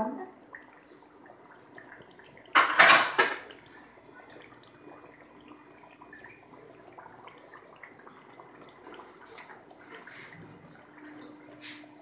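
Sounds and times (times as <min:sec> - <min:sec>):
utensil clattering on pan: 0:02.5 - 0:03.4.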